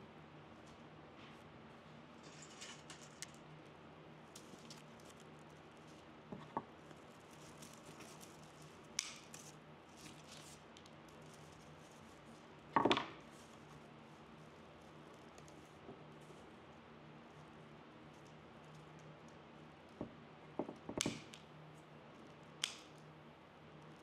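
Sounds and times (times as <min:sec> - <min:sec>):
scissors snipping: 0:22.6 - 0:23.0.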